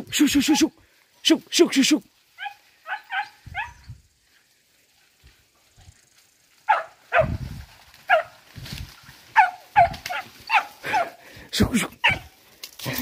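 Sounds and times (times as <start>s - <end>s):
dog barking: 2.4s - 3.8s, 6.7s - 7.4s, 8.1s - 8.4s, 9.3s - 11.2s, 12.0s - 12.4s.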